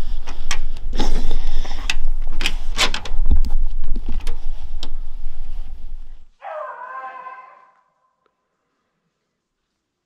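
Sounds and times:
drawn-out pitched call: 0:06.4 - 0:08.0.

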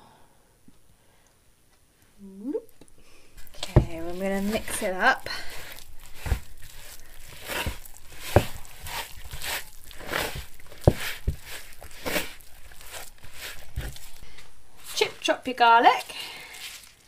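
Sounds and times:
spoon stirring dough in bowl: 0:02.8 - 0:15.3.

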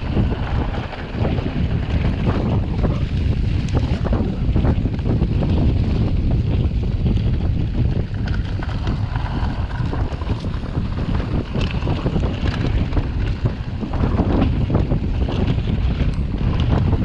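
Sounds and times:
bike tyre noise: 0:00.0 - 0:17.0
wind rushing over microphone: 0:00.0 - 0:17.0.

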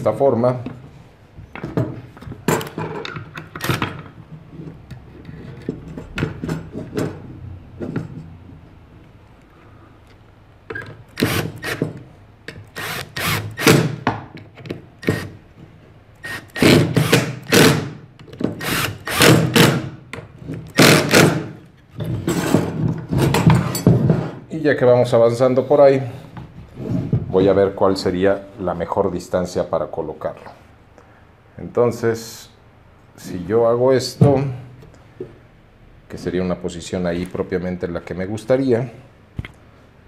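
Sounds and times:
cordless drill driving screws: 0:11.2 - 0:11.9, 0:12.7 - 0:14.0, 0:16.2 - 0:17.9, 0:18.6 - 0:19.8.

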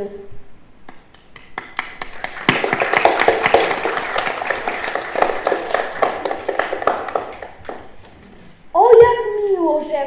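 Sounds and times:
hands clapping: 0:00.8 - 0:08.2.

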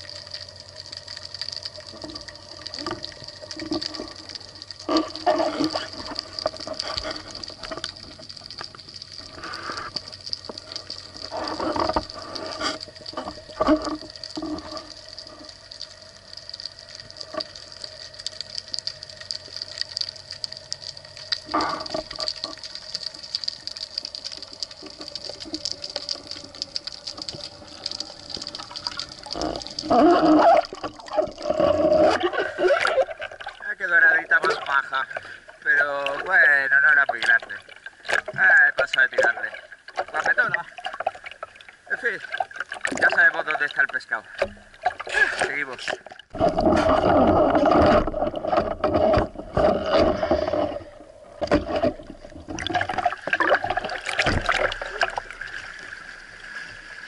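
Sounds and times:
underwater hiss with crackling: 0:00.0 - 0:37.0, 0:53.6 - 0:57.0
gushing water: 0:00.0 - 0:57.0.

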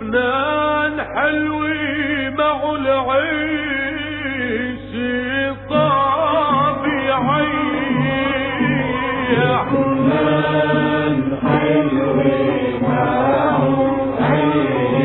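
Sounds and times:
man singing: 0:00.0 - 0:15.0
instrumental accompaniment with bass: 0:05.7 - 0:15.0.

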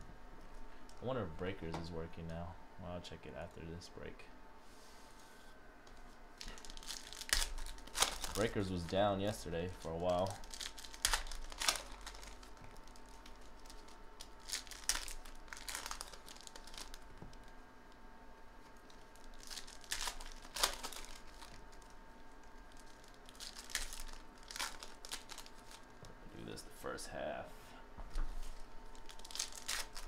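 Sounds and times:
foil wrappers tearing: 0:06.4 - 0:17.2, 0:18.8 - 0:22.0, 0:22.6 - 0:25.9, 0:28.9 - 0:30.0
foil wrapper rustling: 0:06.4 - 0:17.6, 0:18.6 - 0:25.9, 0:28.4 - 0:30.0.

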